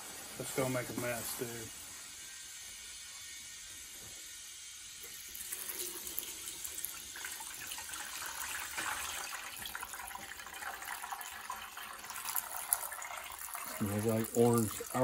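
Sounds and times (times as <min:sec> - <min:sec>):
liquid trickling onto strainer: 0:05.0 - 0:15.0.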